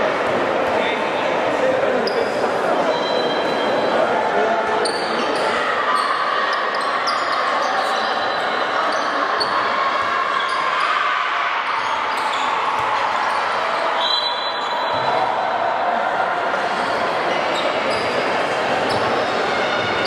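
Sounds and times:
ball bouncing on court: 14.9 - 15.2.

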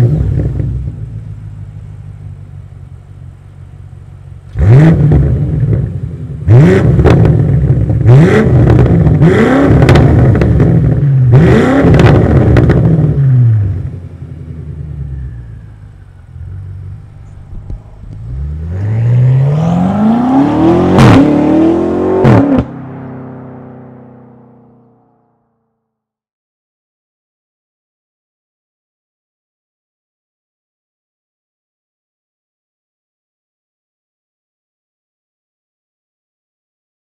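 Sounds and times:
car engine idling: 0.0 - 8.2, 12.2 - 21.0, 21.7 - 25.3
car engine revving: 0.0 - 25.6
car accelerating hard: 4.5 - 14.0, 15.8 - 25.0
exhaust cracks: 15.7 - 21.4.

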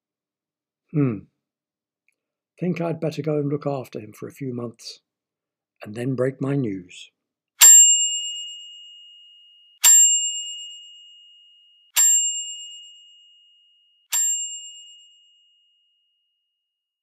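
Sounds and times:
small bell ringing: 7.6 - 16.2.

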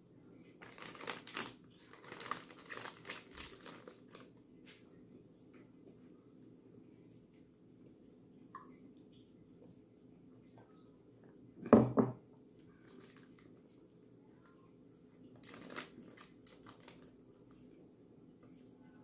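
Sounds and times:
plastic wrapper crinkling: 0.6 - 4.3, 12.8 - 13.6, 15.3 - 17.2.

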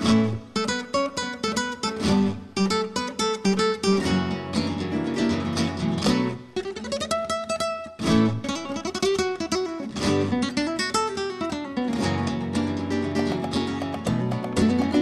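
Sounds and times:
acoustic guitar music: 0.0 - 15.0.

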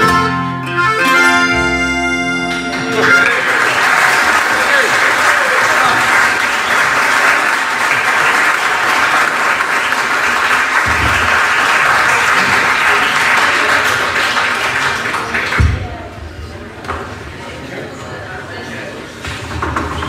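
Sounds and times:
audience applauding: 2.6 - 16.1.

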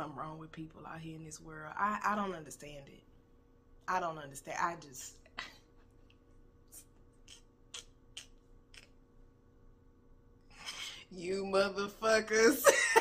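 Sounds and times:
woman laughing: 12.5 - 13.0.

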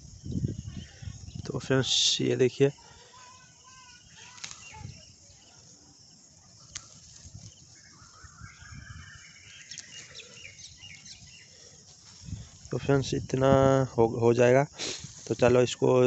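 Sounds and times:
birds chirping: 0.0 - 16.0
leafy branches being pulled: 3.2 - 5.2, 6.5 - 8.4, 9.4 - 10.5.

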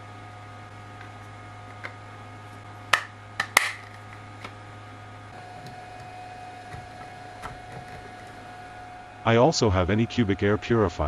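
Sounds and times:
steady low hum: 0.0 - 11.0
plastic housing clicks: 3.0 - 4.6.

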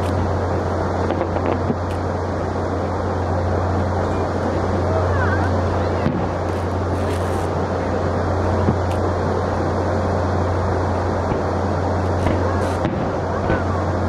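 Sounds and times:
low hum: 0.0 - 14.0
rushing background noise: 0.0 - 14.0
distant fireworks bursting: 5.9 - 7.6, 11.2 - 14.0.

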